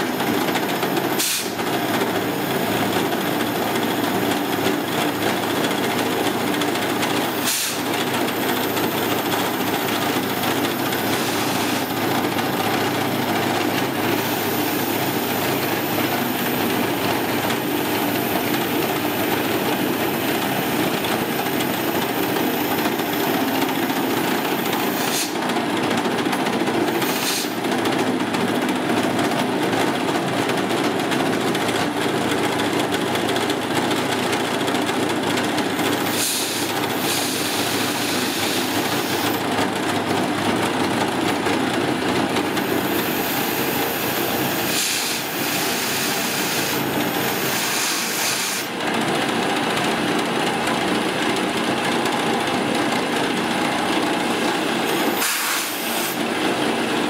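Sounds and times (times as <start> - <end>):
mill drill cutting steel: 0.9 - 25.4, 35.8 - 39.5, 42.4 - 48.8, 54.2 - 57.0
compressed air blow gun hissing: 1.2 - 1.6, 7.3 - 7.9, 10.2 - 12.6, 24.8 - 25.4, 27.0 - 27.6, 36.0 - 39.4, 42.7 - 48.8, 55.0 - 56.2.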